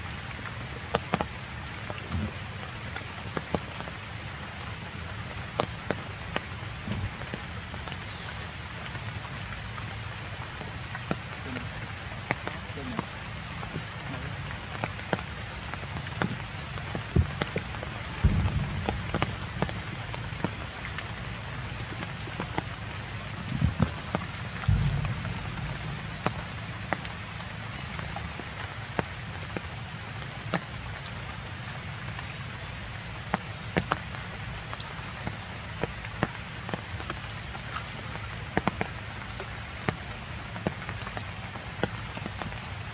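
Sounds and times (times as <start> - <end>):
rain falling: 0.0 - 42.9
drops ticking on a surface: 14.7 - 21.1
low thumps: 18.2 - 19.8, 24.6 - 27.4.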